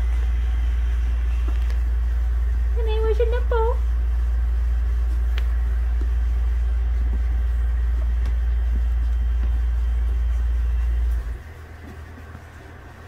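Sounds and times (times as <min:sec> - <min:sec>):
machine humming: 0:00.0 - 0:13.0.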